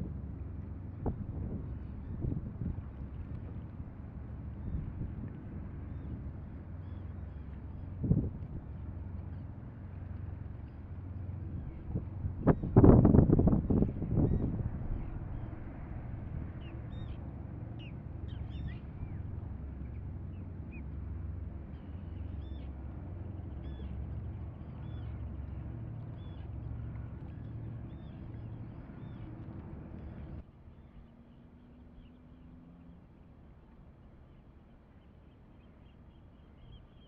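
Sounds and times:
faint steady hum: 0:00.0 - 0:37.0
wind on microphone: 0:00.9 - 0:03.7, 0:04.4 - 0:06.4, 0:07.9 - 0:08.8, 0:11.4 - 0:17.8.

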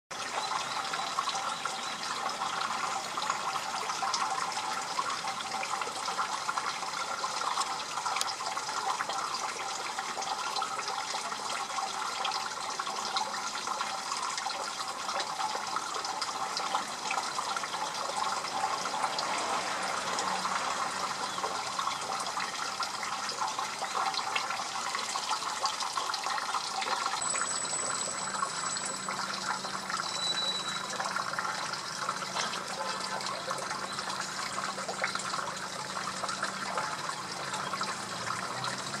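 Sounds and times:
running water rushing: 0:00.1 - 0:39.0
thin high whistle: 0:27.2 - 0:31.2.

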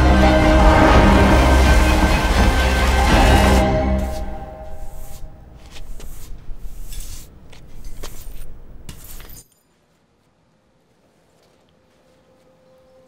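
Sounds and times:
broom sweeping glass shards: 0:06.0 - 0:09.6.

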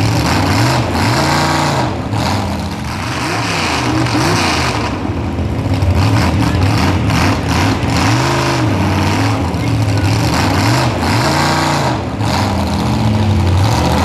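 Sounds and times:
truck engine revving hard: 0:00.0 - 0:14.0.

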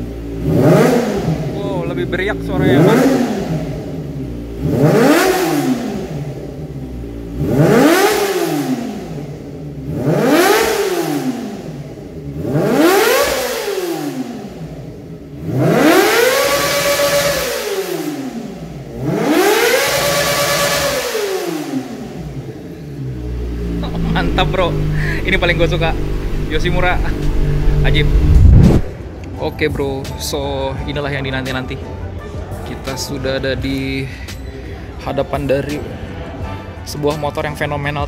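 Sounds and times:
motorcycle engine revving: 0:00.0 - 0:29.2.

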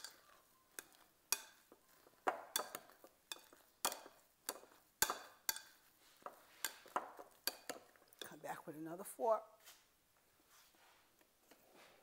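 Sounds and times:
utensil mashing in a bowl: 0:00.0 - 0:08.6.

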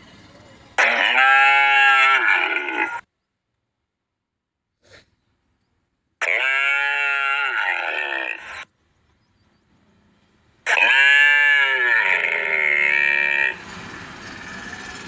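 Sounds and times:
calf mooing: 0:00.8 - 0:03.0, 0:06.2 - 0:08.6, 0:10.7 - 0:13.6.

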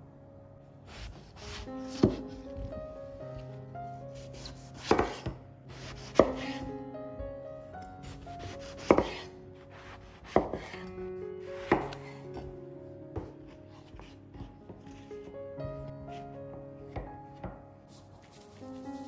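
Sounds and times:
knife cutting on cutting board: 0:00.9 - 0:02.3, 0:04.4 - 0:06.6, 0:08.1 - 0:10.8.

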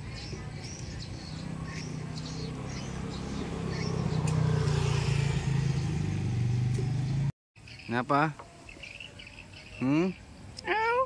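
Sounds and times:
vehicle engine humming: 0:00.0 - 0:07.3
faint bird chirps: 0:07.6 - 0:10.8.

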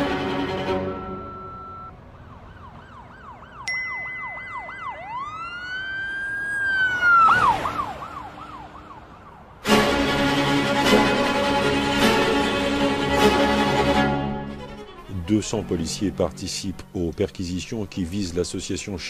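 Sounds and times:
music: 0:00.0 - 0:01.9, 0:09.6 - 0:17.2
steady high tone: 0:00.0 - 0:01.9, 0:03.7 - 0:05.4
police siren: 0:00.0 - 0:13.8.

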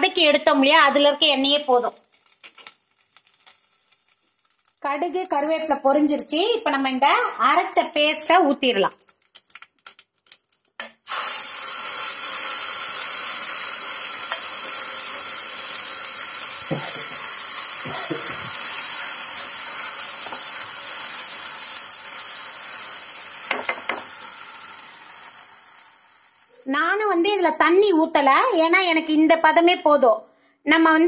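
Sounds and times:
paste sizzling in hot oil: 0:00.1 - 0:06.2, 0:10.8 - 0:26.7.

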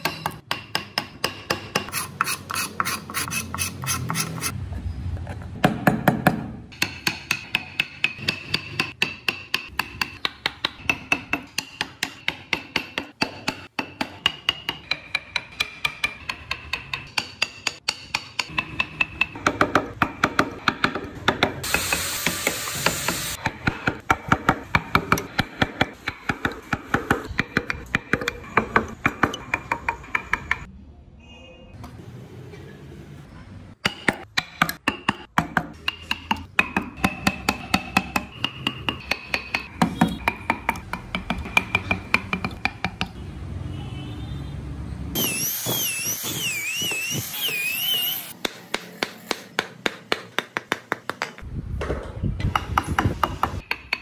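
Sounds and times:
mallet striking chisel into wood: 0:00.0 - 0:03.0, 0:05.6 - 0:22.5, 0:33.8 - 0:43.2, 0:48.4 - 0:51.5, 0:52.4 - 0:54.0.

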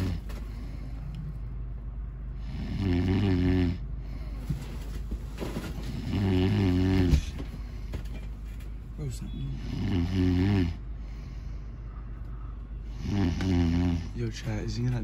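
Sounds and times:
man snoring: 0:00.0 - 0:00.3, 0:02.4 - 0:04.2, 0:05.9 - 0:07.3, 0:09.5 - 0:10.8, 0:12.9 - 0:14.2.

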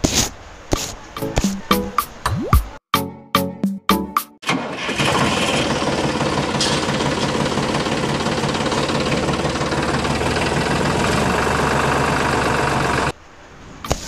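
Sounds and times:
tractor engine idling: 0:04.4 - 0:13.1.

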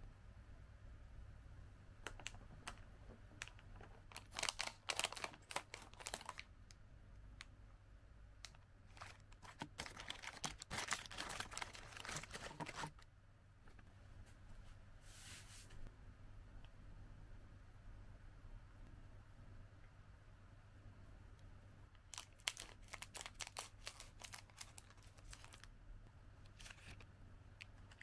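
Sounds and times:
plastic packaging crinkling: 0:03.4 - 0:06.5, 0:08.5 - 0:13.0, 0:22.0 - 0:25.7.

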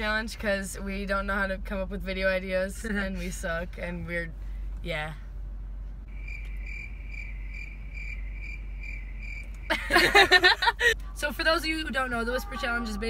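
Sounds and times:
cricket chirping: 0:06.1 - 0:10.6
loud laughter: 0:09.7 - 0:11.0.

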